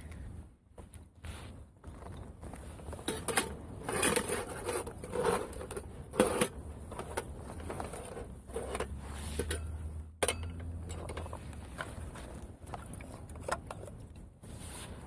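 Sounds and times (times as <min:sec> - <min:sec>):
low steady rumble: 0:02.1 - 0:15.0
metal cookware clinking: 0:08.8 - 0:11.3.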